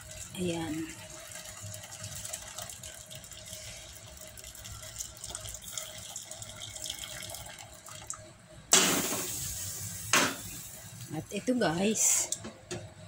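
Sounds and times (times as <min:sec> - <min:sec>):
liquid pouring into a pot: 0:00.0 - 0:08.2.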